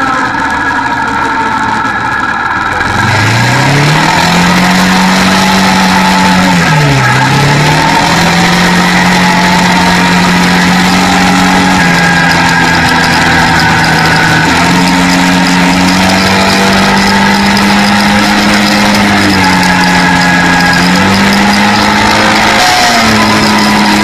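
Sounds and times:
atv engine running: 0:00.0 - 0:24.0.

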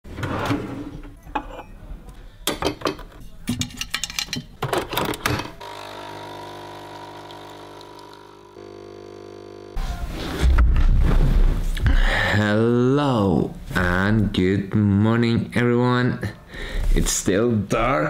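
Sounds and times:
drawer opening: 0:00.1 - 0:01.6
coffee machine pump humming: 0:05.6 - 0:09.8.

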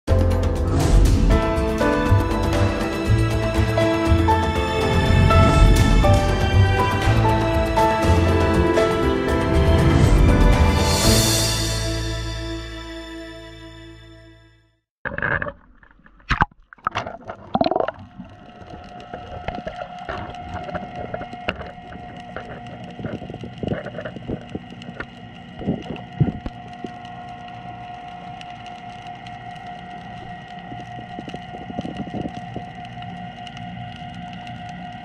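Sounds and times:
underwater hum: 0:01.5 - 0:08.8, 0:15.0 - 0:35.0
clicks and crackles: 0:15.0 - 0:35.0
underwater splashing: 0:15.0 - 0:35.0.

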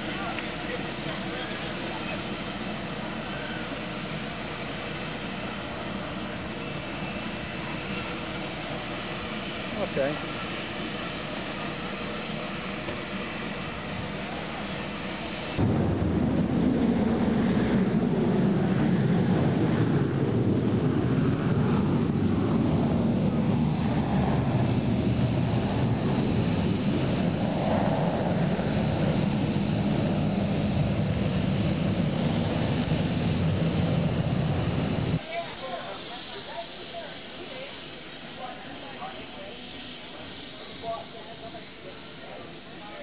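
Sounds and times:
jet airliner rumble: 0:00.0 - 0:43.0.

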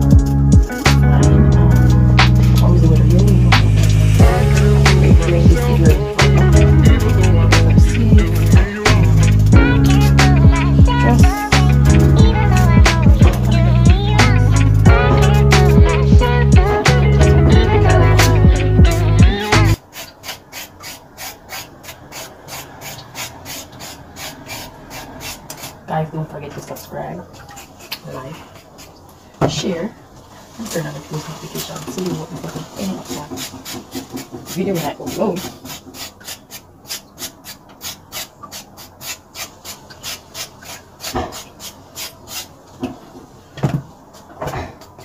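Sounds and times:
music: 0:00.0 - 0:19.8
vegetable peeling scrapes: 0:19.8 - 0:25.9, 0:27.4 - 0:29.0, 0:31.5 - 0:42.6.

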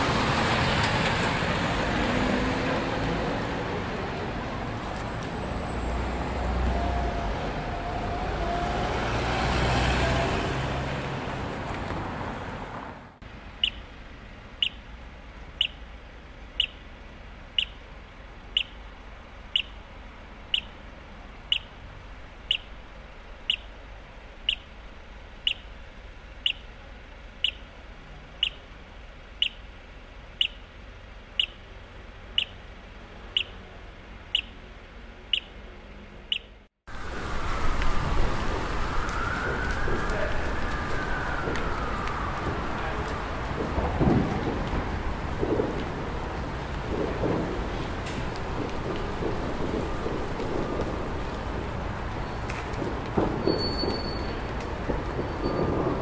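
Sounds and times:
vehicle passing close by: 0:00.0 - 0:13.2
road traffic: 0:00.0 - 0:56.0.

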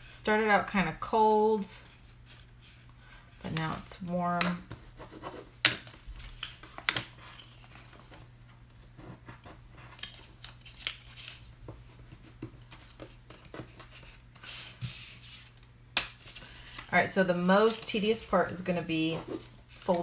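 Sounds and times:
paper rustling and rubbing: 0:17.5 - 0:20.0.

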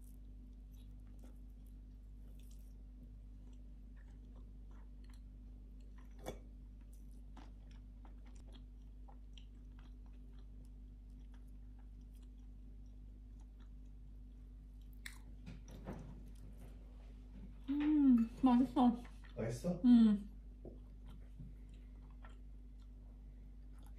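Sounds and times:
person chewing: 0:00.0 - 0:16.5, 0:20.7 - 0:23.9
low steady hum: 0:00.0 - 0:23.9.

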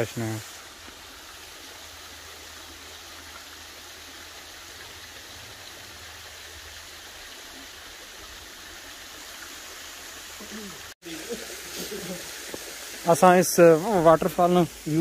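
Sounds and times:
waterfall rushing: 0:10.3 - 0:15.0.

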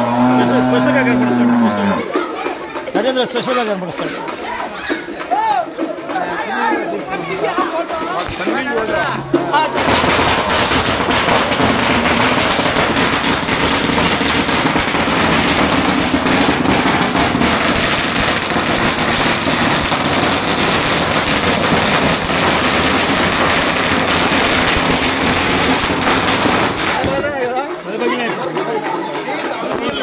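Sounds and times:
firecrackers going off: 0:08.1 - 0:27.8.

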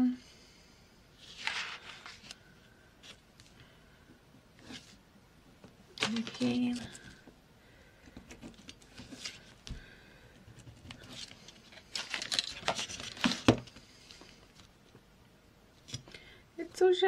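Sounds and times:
card rustling and tapping: 0:05.6 - 0:07.2, 0:08.0 - 0:14.7.

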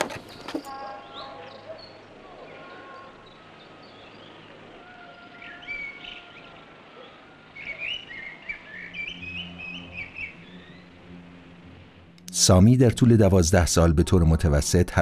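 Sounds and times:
birds chirping: 0:00.0 - 0:15.0
low steady hum: 0:00.0 - 0:15.0
whistled bird notes: 0:00.3 - 0:11.0.

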